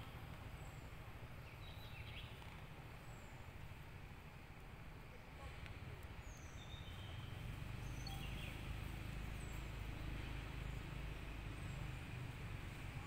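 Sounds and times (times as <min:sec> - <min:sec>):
birds chirping: 0:06.2 - 0:08.8.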